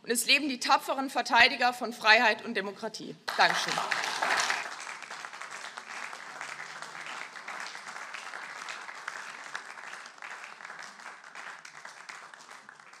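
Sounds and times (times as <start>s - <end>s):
crowd applauding: 3.3s - 13.0s.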